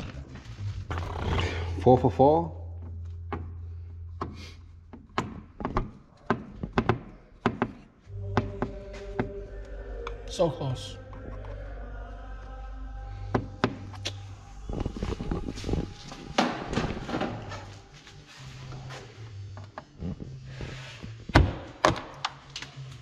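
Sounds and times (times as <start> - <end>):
knocks and rattles on plastic: 4.9 - 7.9.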